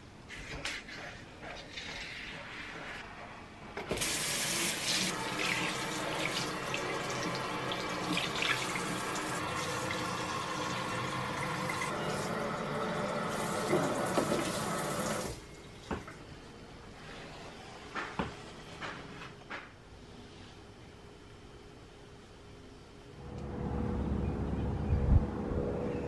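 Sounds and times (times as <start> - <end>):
water spraying into sink: 13.1 - 15.4.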